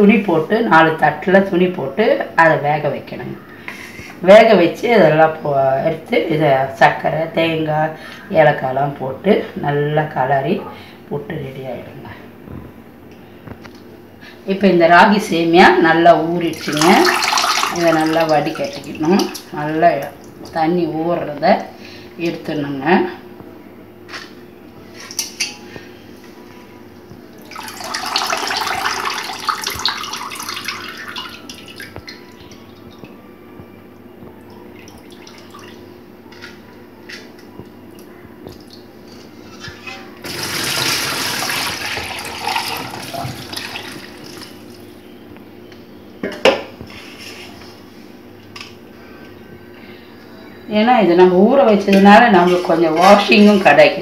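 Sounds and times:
water splashing in steel bowl: 16.5s - 19.5s, 27.5s - 32.2s.

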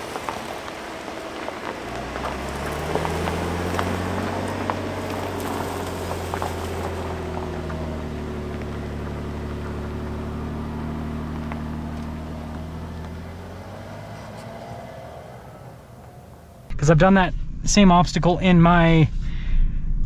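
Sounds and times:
tyres crackling over stones: 0.0s - 16.7s
pickup truck engine droning: 0.0s - 19.0s.

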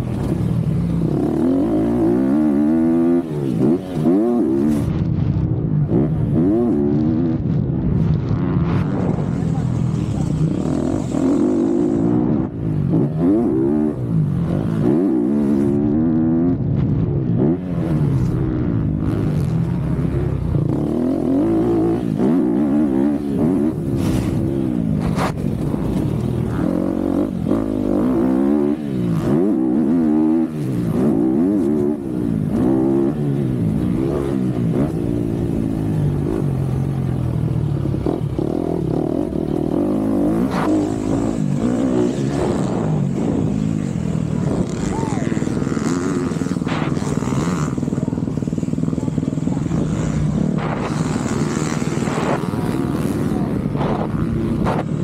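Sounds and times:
motocross bike engine revving: 0.0s - 5.0s, 5.8s - 7.8s, 8.4s - 55.0s.

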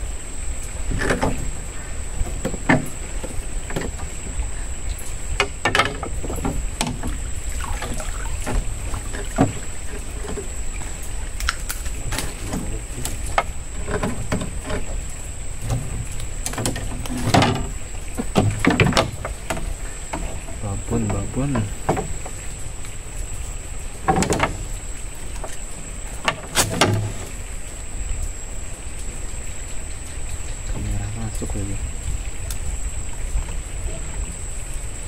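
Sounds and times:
knocks against wooden boat: 5.4s - 10.4s, 15.6s - 22.4s.

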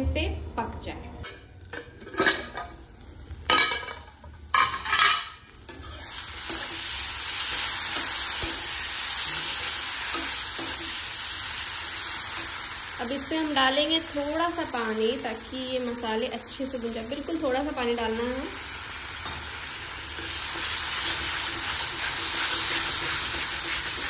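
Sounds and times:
masala sizzling in oil: 1.3s - 24.0s
steel spatula scraping: 20.2s - 24.0s.

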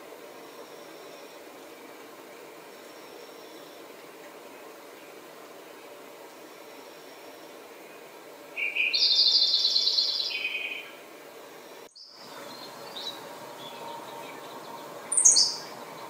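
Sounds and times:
background hiss: 0.0s - 16.0s
sparrow singing a trill: 8.6s - 11.0s, 11.9s - 16.0s.

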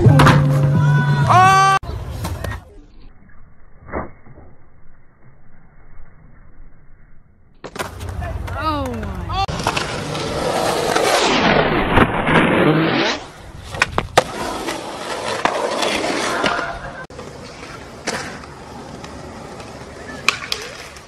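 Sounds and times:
skateboard wheels rolling on concrete: 7.6s - 21.0s
skateboard popping and landing clacks: 13.7s - 21.0s.

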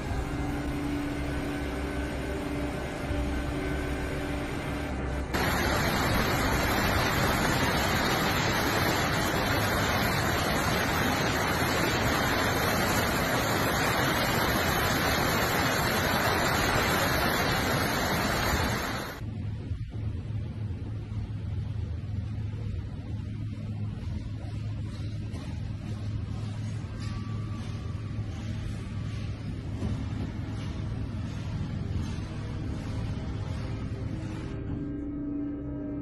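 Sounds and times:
low hum: 0.0s - 36.0s
floodwater rushing: 5.3s - 19.2s.

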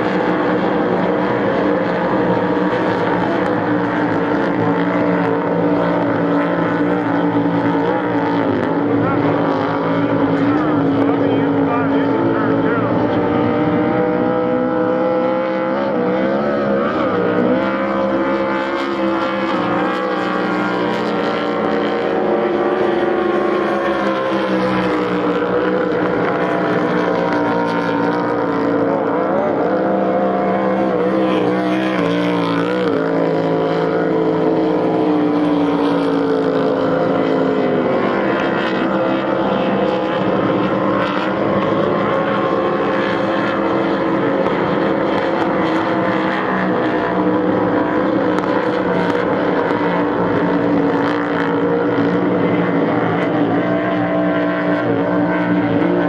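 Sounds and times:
race boat engines roaring past: 0.0s - 56.0s.

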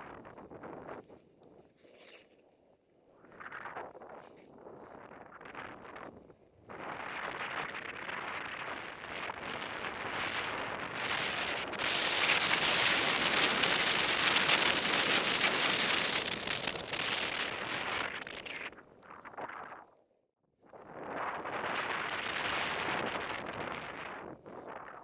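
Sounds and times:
wind on microphone: 0.0s - 2.3s, 3.1s - 19.9s, 20.7s - 25.0s
skis sliding over snow: 6.8s - 18.7s.

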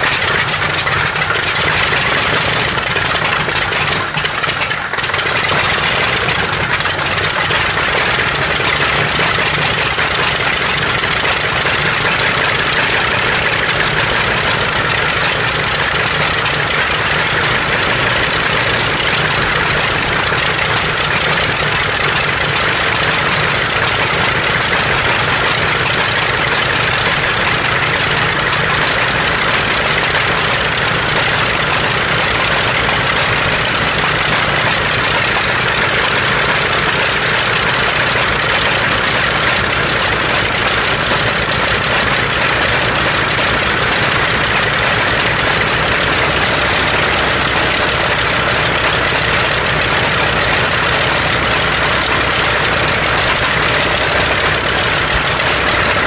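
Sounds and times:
propeller aircraft engine running: 0.0s - 56.0s.

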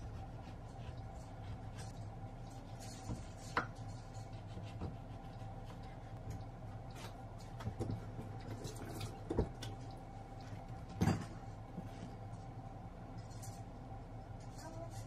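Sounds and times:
low hum: 0.0s - 15.0s
kitchen clatter: 10.9s - 11.4s.

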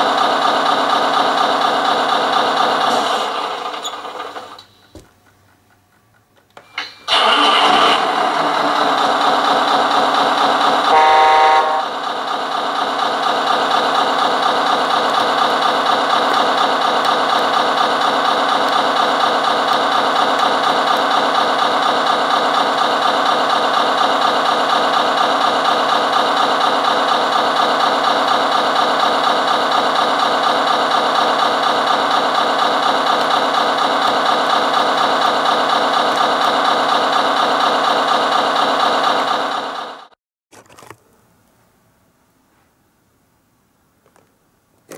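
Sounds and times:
simulated diesel engine idling: 0.0s - 4.9s, 7.1s - 40.1s
truck horn blast: 10.8s - 11.9s.

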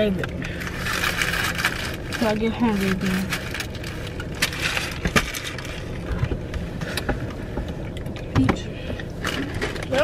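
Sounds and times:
low rumble inside a car: 0.0s - 10.0s
paper wrapper crinkling: 0.6s - 5.8s.

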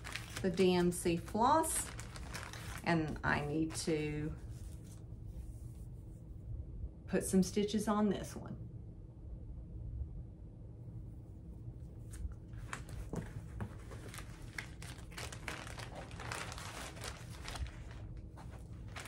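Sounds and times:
packaging crinkling and rustling: 0.0s - 3.9s, 12.2s - 19.0s.

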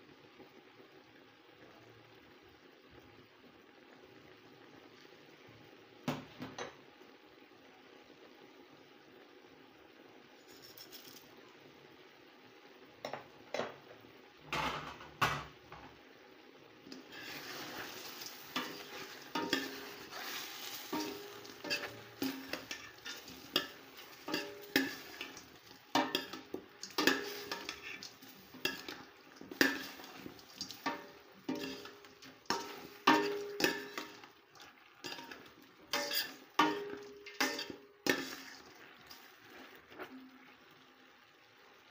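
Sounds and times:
chicken sizzling in a pot: 0.0s - 41.9s
utensil scraping metal pot: 16.9s - 40.2s.

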